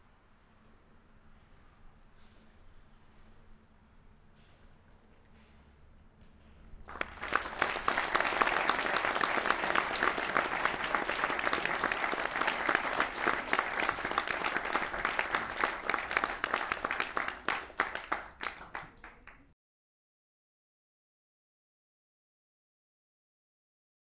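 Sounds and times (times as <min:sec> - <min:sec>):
audience applauding: 0:06.9 - 0:19.5.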